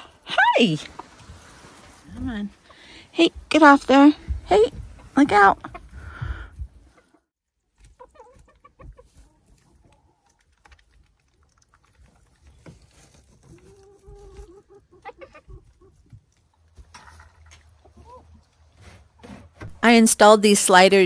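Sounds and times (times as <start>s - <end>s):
chickens clucking softly: 7.9s - 10.4s, 13.4s - 16.4s.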